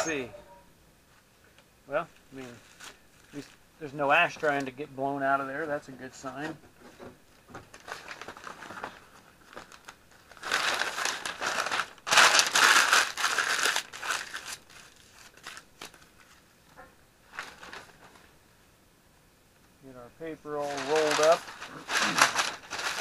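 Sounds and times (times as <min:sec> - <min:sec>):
newspaper crumpling: 0:07.7 - 0:16.5, 0:17.3 - 0:18.3, 0:20.5 - 0:23.0.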